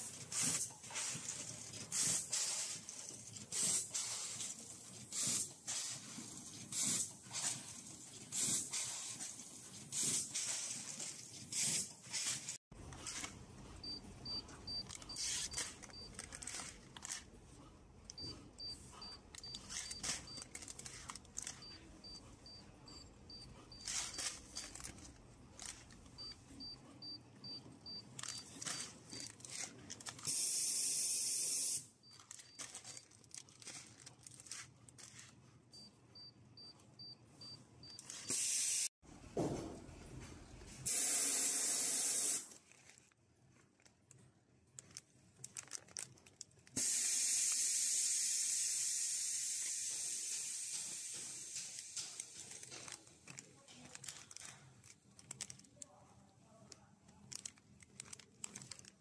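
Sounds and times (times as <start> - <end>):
plastic packaging crinkling: 14.8 - 17.4, 19.6 - 21.7, 23.8 - 26.1, 28.2 - 30.3, 32.1 - 35.4, 42.6 - 46.8, 52.2 - 59.0
air hissing bursts: 40.9 - 42.5, 46.8 - 51.7.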